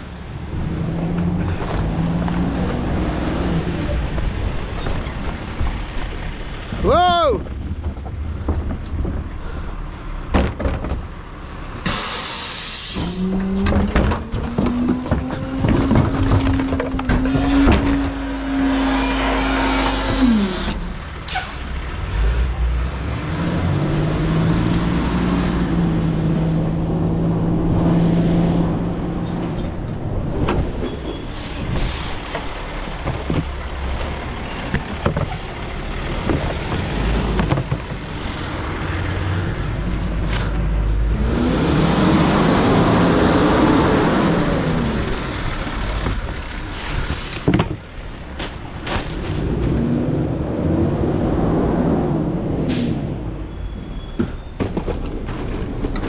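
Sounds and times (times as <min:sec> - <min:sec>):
clanks and knocks: 0:07.4 - 0:11.2, 0:13.0 - 0:18.2, 0:31.8 - 0:38.2
air brake hiss: 0:11.8 - 0:13.2
hydraulic whine: 0:17.0 - 0:21.6
garbage truck engine running: 0:28.9 - 0:50.6.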